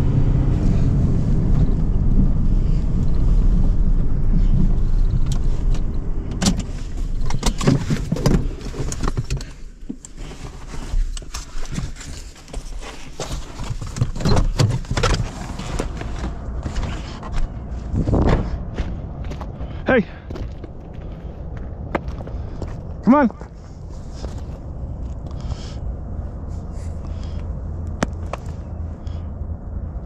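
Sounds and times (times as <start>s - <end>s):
truck engine rumbling: 0.0s - 30.0s
rustling: 6.7s - 18.2s.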